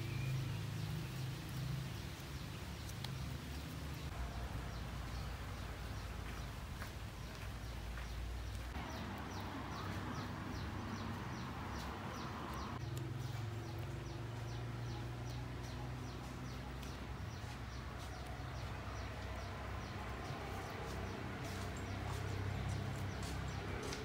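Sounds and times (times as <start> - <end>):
bird chirping: 0.0 - 24.0.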